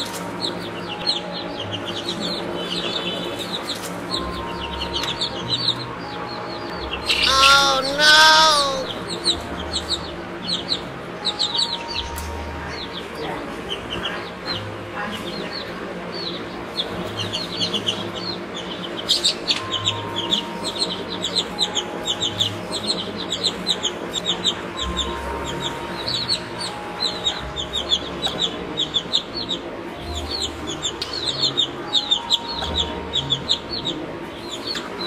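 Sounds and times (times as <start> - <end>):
baby chicks peeping: 0.0 - 35.0.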